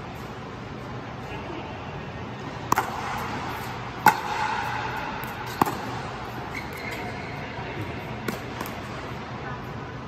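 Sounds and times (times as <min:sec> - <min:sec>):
paddle striking ball: 0:04.0 - 0:06.1.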